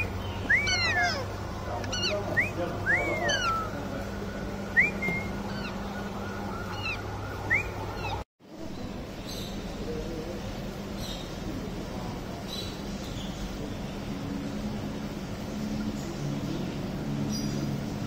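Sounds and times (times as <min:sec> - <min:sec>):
parrot chicks whistling calls: 0:00.0 - 0:03.8, 0:04.8 - 0:05.8, 0:06.6 - 0:08.2
steady low hum: 0:00.0 - 0:18.0.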